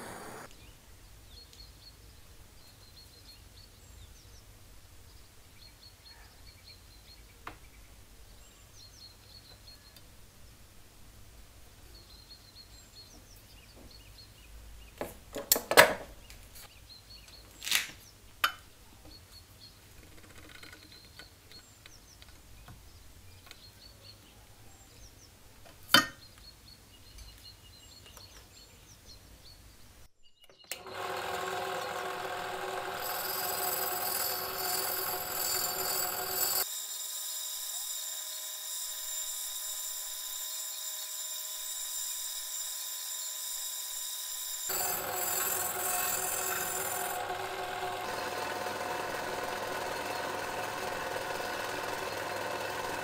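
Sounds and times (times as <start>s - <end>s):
drill press with wire wheel: 0.0s - 0.5s, 30.6s - 53.0s.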